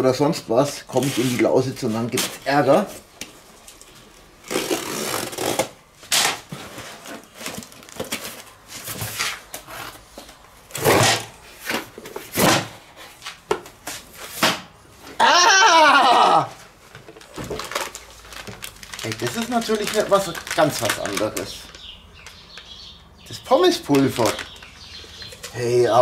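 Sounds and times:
knife slitting packing tape: 4.5s - 6.4s.

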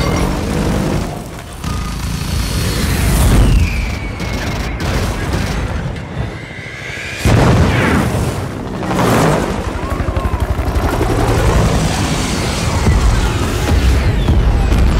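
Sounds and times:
explosion booms: 7.2s - 8.5s.

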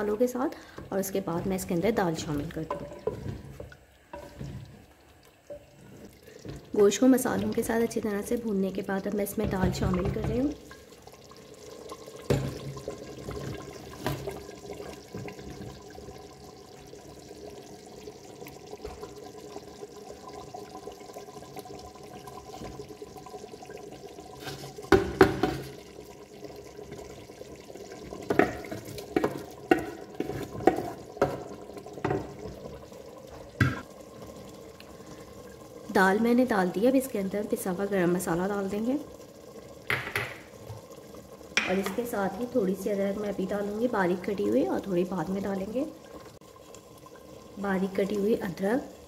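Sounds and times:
wooden spoon knocking on clay pot: 41.6s - 42.0s.

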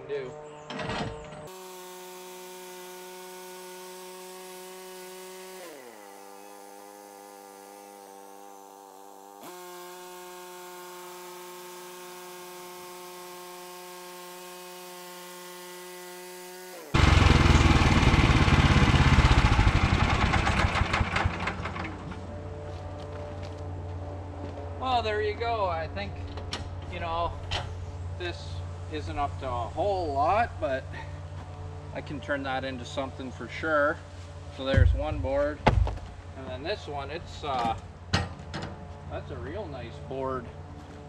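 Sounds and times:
band blade cutting through log: 1.5s - 17.0s
sawmill engine running: 1.5s - 23.6s.

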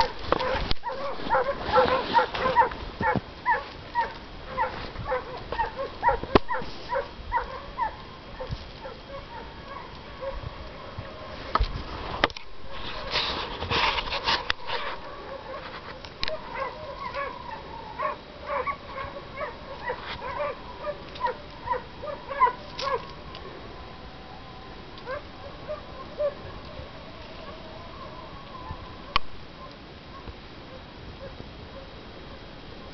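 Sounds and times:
dog yelping: 0.4s - 11.2s, 14.8s - 15.7s, 16.3s - 23.2s, 25.0s - 29.2s.

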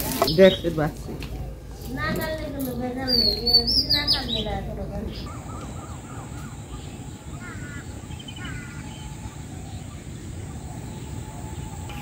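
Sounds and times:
crows cawing: 5.1s - 9.2s.

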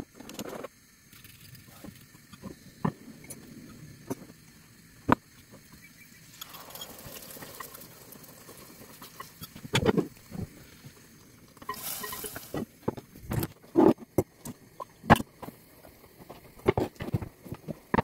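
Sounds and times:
steam hiss: 0.5s - 18.0s
spoon scraping cookware: 11.6s - 12.7s.

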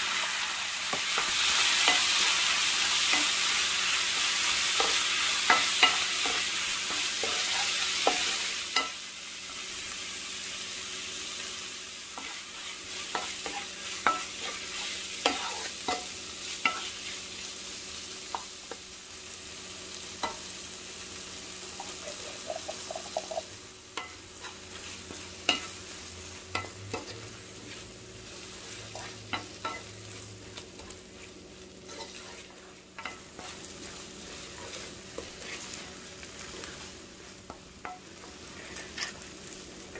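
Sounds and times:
food sizzling in a frying pan: 0.0s - 39.9s
spoon tapping and scraping pan: 0.9s - 3.4s, 4.2s - 9.0s, 13.1s - 14.6s, 15.2s - 16.9s, 21.8s - 25.8s, 29.0s - 30.0s, 37.4s - 39.2s.

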